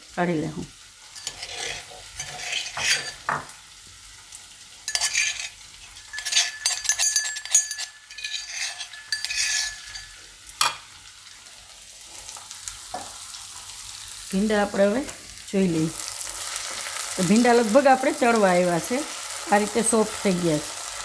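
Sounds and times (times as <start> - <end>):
spoon scraping metal mortar: 1.2 - 3.3, 4.9 - 10.2.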